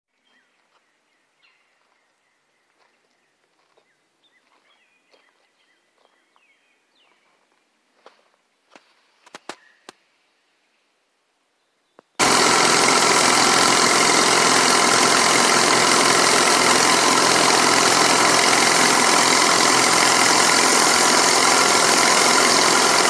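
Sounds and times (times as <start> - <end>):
faint birds chirping: 0.1 - 8.0.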